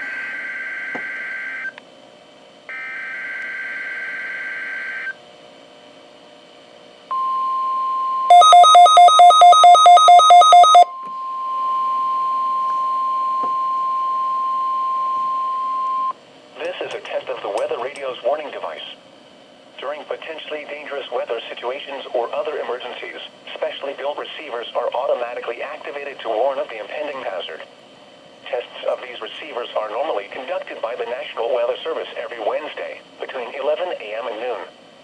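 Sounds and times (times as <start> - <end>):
steady warning alarm tone: 0.0 - 1.8, 2.7 - 5.2, 7.1 - 16.2
rapid radio beeping: 8.3 - 10.9.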